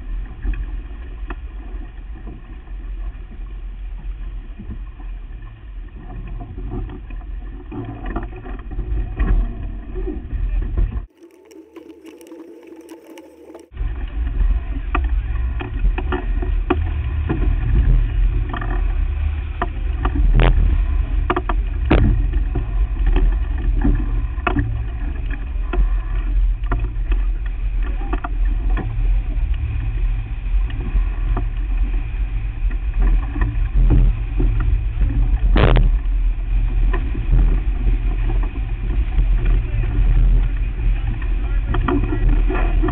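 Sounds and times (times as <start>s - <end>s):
low rumble of a sailboat: 0.0s - 42.9s
knocks and clicks of boat gear: 6.0s - 11.2s, 12.9s - 29.8s, 36.8s - 42.9s.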